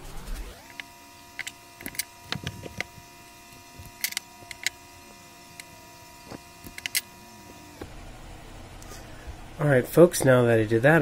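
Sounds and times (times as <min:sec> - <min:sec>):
faint steady hum: 0:00.1 - 0:11.0
thread spools clicking and tapping: 0:00.6 - 0:07.9.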